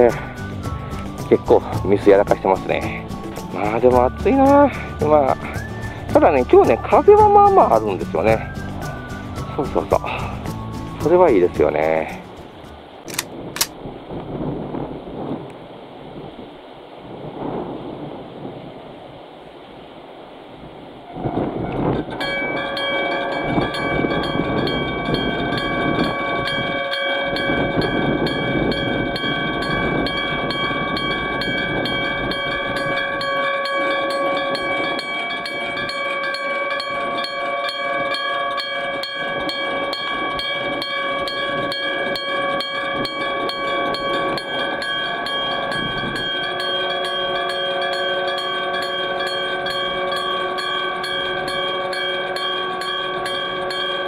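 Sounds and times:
level crossing bell ringing: 22.2 - 54.0.

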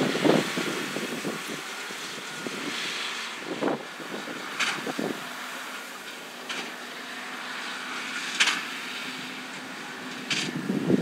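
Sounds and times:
tractor diesel engine under load: 0.0 - 11.0.

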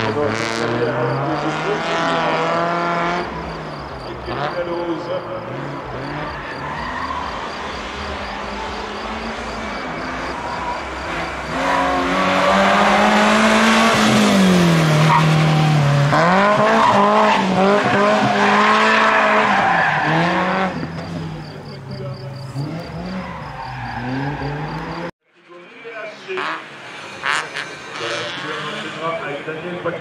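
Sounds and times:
car engine revving hard: 0.0 - 21.6
tyre squeal: 3.2 - 14.2, 16.6 - 25.1.

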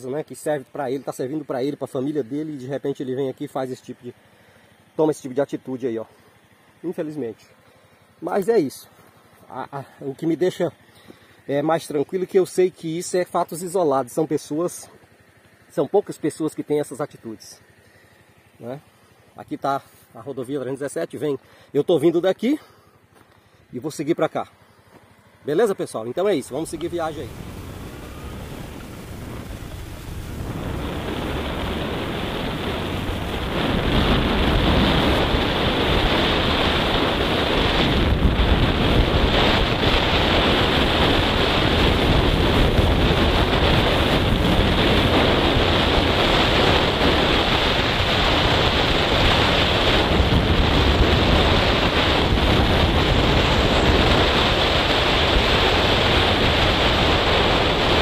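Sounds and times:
wind rushing over microphone: 26.5 - 58.0.

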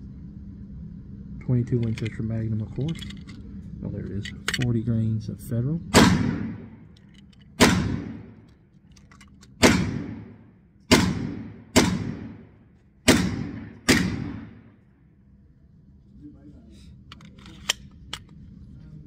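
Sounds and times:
gunshots echoing indoors: 5.9 - 6.8, 7.6 - 8.4, 9.6 - 14.8.

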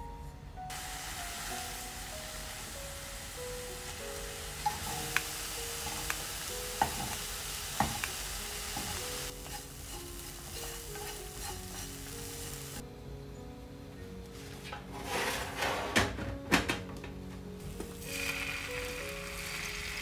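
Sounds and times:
soft background music: 0.0 - 20.0
food sizzling in frying pan: 0.7 - 12.8, 17.7 - 20.0
tongs clicking against pan: 4.6 - 12.2.

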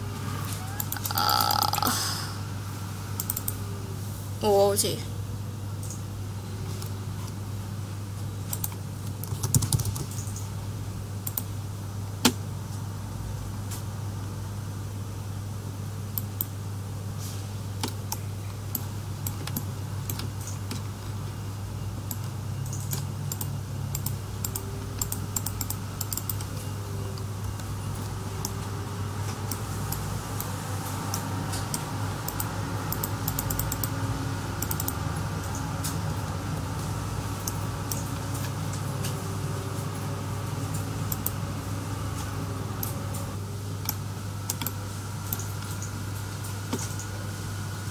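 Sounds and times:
steady low hum: 0.0 - 47.9
keyboard and mouse clicking: 0.8 - 1.9, 3.2 - 3.6, 8.5 - 10.5, 11.2 - 11.5, 22.0 - 26.5, 31.1 - 34.0, 34.6 - 36.0, 37.4 - 38.5, 41.1 - 41.4, 43.8 - 45.8.

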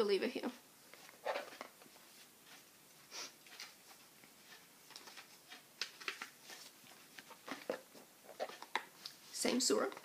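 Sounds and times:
book pages turning: 4.9 - 9.2.

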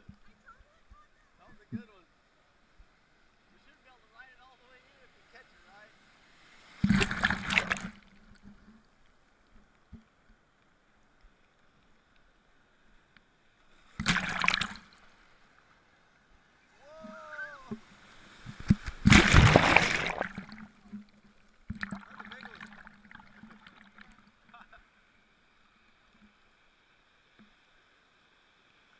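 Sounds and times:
ocean surf splashing: 4.0 - 8.0, 16.7 - 20.9, 21.9 - 24.7
brief voice-like call: 16.8 - 17.8.

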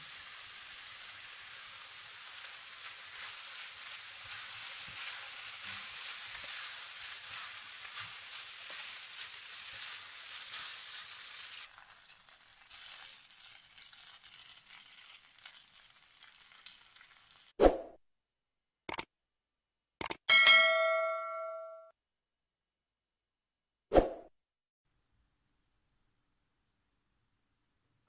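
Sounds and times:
food sizzling in a hot pan: 0.0 - 17.6
wooden spatula stirring: 2.7 - 17.4.

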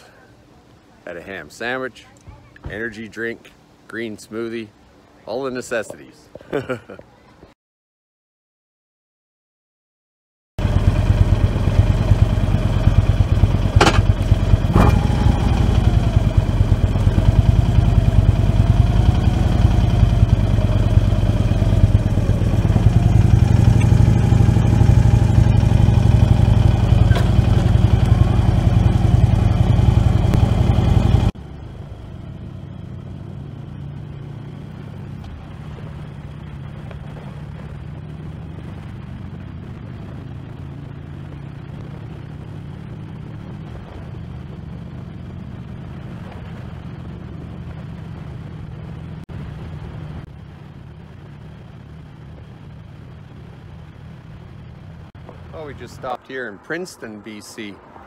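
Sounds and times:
road rumble: 0.0 - 7.6, 10.6 - 58.0
motorcycle engine running loud: 10.6 - 55.8.

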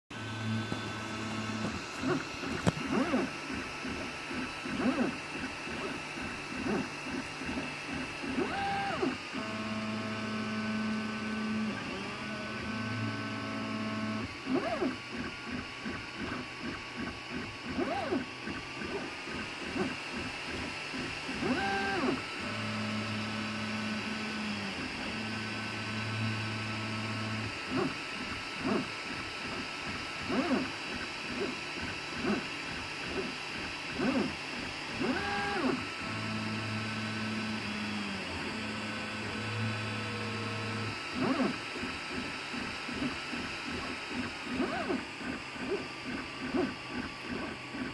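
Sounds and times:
print head whirs: 0.1 - 47.9
steady printer whir: 0.1 - 47.9.

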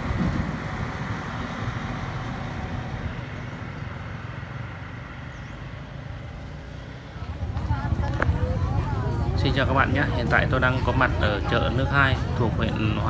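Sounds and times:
motorbike engine passing: 0.0 - 13.0
truck engine passing: 0.0 - 13.0.

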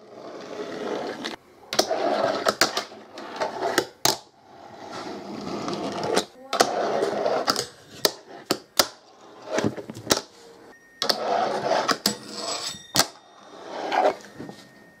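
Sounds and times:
fingerboard rolling and scraping: 0.0 - 14.7.

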